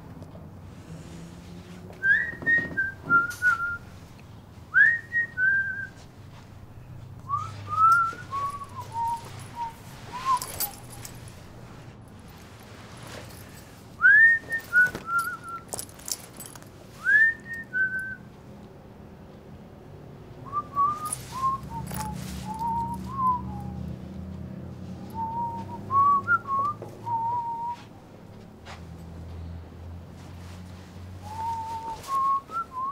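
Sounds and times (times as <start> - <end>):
person whistling a tune: 2.0 - 3.8, 4.8 - 6.0, 7.3 - 10.8, 14.0 - 15.7, 17.0 - 18.3, 20.4 - 24.0, 25.1 - 27.9, 31.2 - 32.9.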